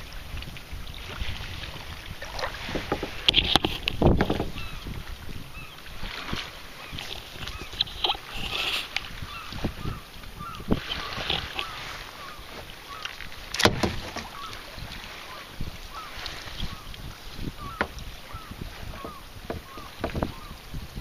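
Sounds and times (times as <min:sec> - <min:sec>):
water lapping against a kayak: 0:00.0 - 0:21.0
small splashes: 0:05.9 - 0:20.3
faint wind rumble: 0:13.7 - 0:21.0.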